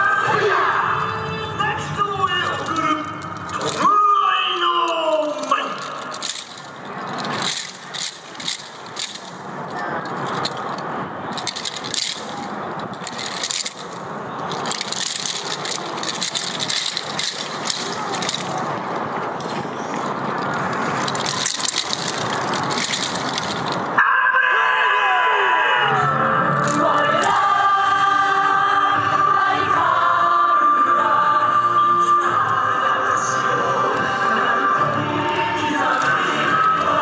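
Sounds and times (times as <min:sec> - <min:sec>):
wooden clappers rattling: 0:02.3 - 0:03.9, 0:04.7 - 0:24.0, 0:26.6 - 0:27.5, 0:35.8 - 0:37.0.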